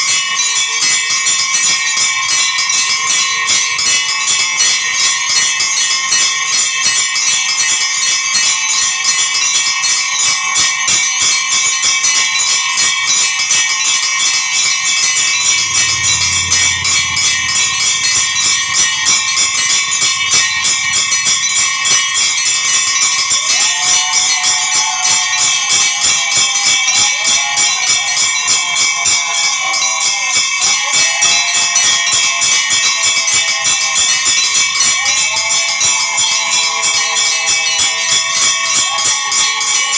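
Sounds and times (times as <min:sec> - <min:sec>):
temple bells ringing rapidly: 0:00.0 - 0:39.9
wavering falling tone: 0:14.8 - 0:23.7.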